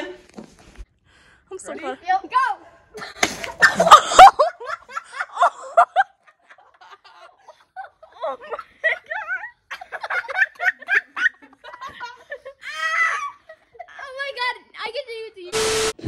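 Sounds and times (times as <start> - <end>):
boys laughing: 2.9 - 14.2.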